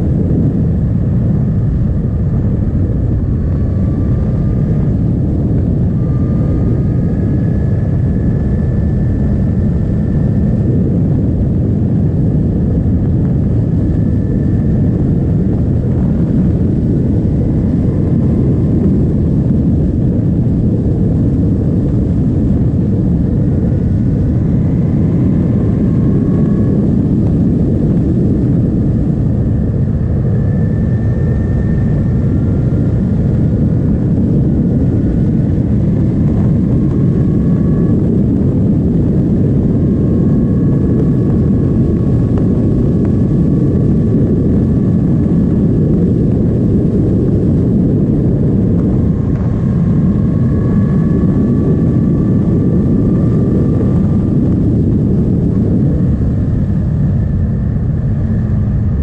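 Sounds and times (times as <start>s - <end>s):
wind and road noise: 0.0s - 59.0s.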